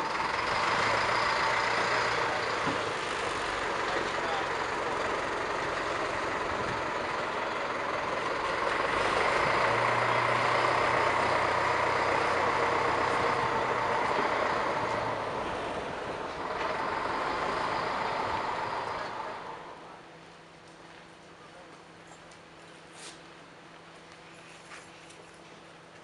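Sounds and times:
locomotive rushing noise: 0:00.0 - 0:20.3.

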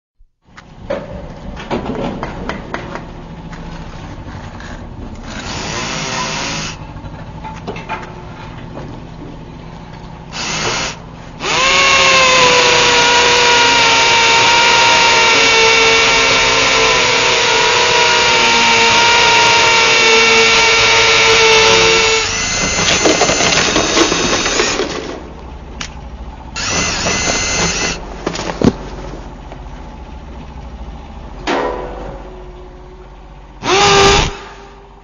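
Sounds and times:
drill clicks: 0:05.2 - 0:06.8, 0:10.3 - 0:24.9, 0:26.6 - 0:28.0, 0:33.6 - 0:34.4
electric drill motor whine: 0:05.2 - 0:06.8, 0:10.3 - 0:24.8, 0:26.6 - 0:28.0, 0:33.6 - 0:34.7.

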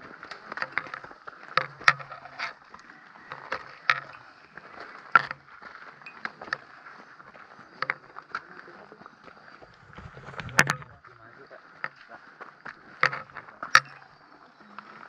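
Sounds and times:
footsteps on trail: 0:00.0 - 0:15.0.

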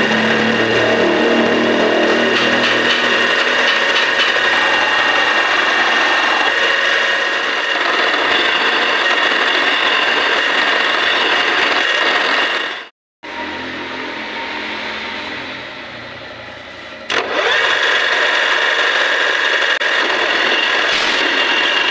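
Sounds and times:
milling machine spindle running: 0:00.0 - 0:12.8
end mill cutting metal: 0:00.0 - 0:21.9.

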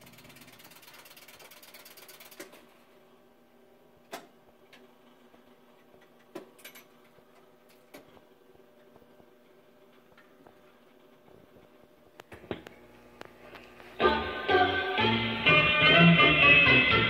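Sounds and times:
ratcheting whir of mechanism: 0:00.0 - 0:02.6.

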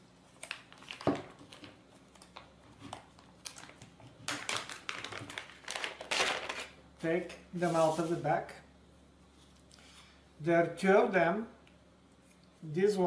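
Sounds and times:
plastic bag crinkling: 0:00.3 - 0:06.8.

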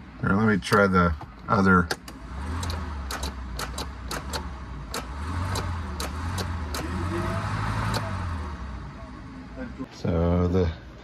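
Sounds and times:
sharp clicks: 0:01.9 - 0:06.9.

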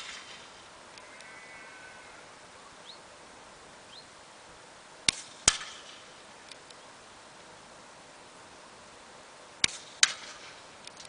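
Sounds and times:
air rifle shot crack: 0:05.1 - 0:06.0
pellet striking target: 0:05.1 - 0:06.0.

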